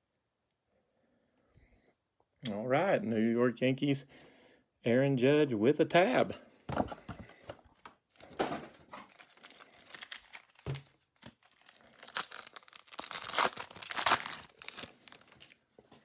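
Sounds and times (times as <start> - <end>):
wrapper tearing and crinkling: 9.0 - 15.6.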